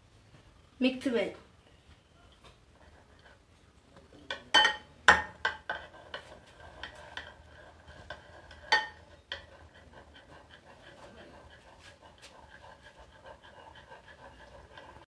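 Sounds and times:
spoon clinking against glass bowl: 0:04.3 - 0:05.3.

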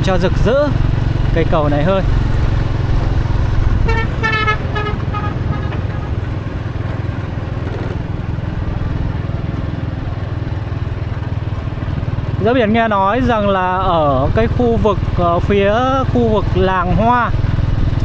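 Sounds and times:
motorbike engine running: 0:00.0 - 0:18.0
road and wind noise: 0:00.0 - 0:18.0
short horn beeps: 0:03.9 - 0:05.7.

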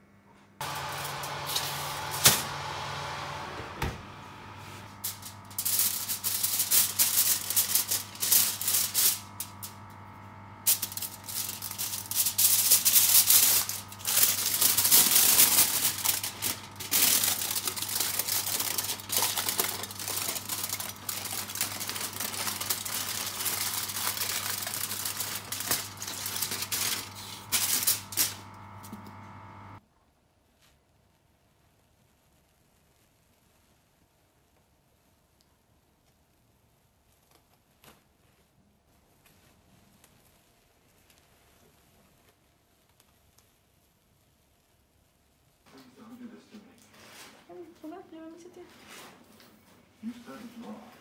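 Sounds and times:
steady low hum: 0:00.0 - 0:29.8
aluminium foil crinkling: 0:04.9 - 0:29.8.

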